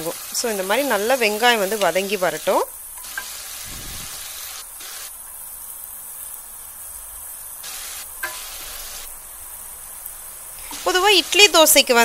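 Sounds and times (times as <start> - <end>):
onions sizzling in hot oil: 0.0 - 12.0.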